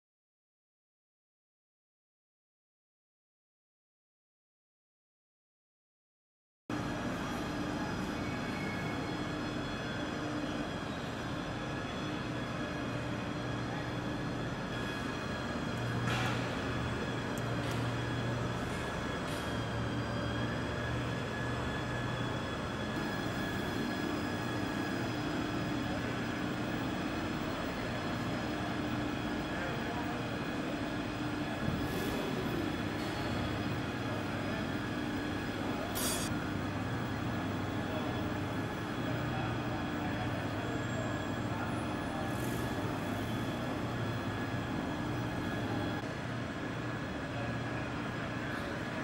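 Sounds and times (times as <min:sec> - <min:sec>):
high steady whines: 0:06.7 - 0:49.0
transporter mechanical hum: 0:06.7 - 0:49.0.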